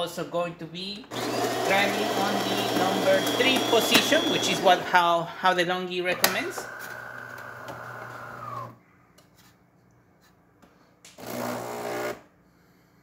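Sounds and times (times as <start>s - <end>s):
coffee grinder running: 1.1s - 5.4s, 6.1s - 8.8s.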